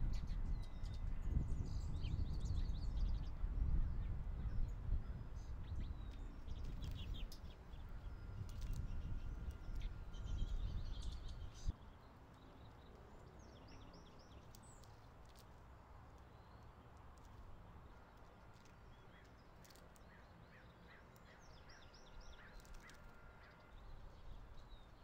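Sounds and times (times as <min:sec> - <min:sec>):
wind rumble on microphone: 0:00.0 - 0:11.8, 0:23.7 - 0:25.0
small birds chirping: 0:00.0 - 0:25.0.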